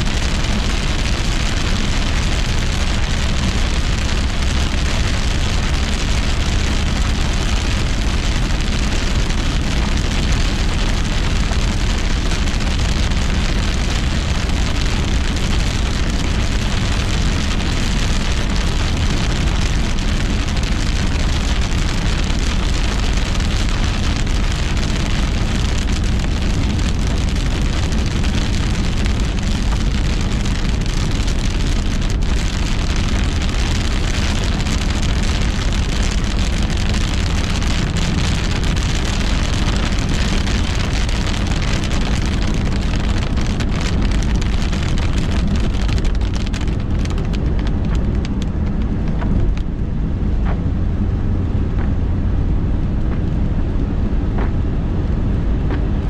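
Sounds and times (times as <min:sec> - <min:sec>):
heavy rain on car windshield: 0:00.0 - 0:52.0
road and tyre rumble: 0:00.0 - 0:56.0.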